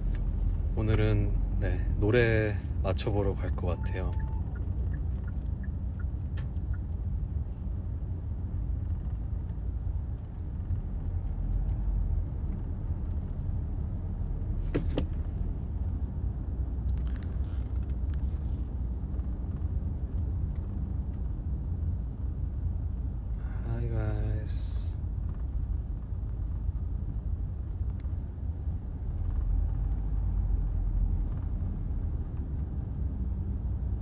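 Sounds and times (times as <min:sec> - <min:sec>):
car cabin road and engine rumble: 0:00.0 - 0:34.0.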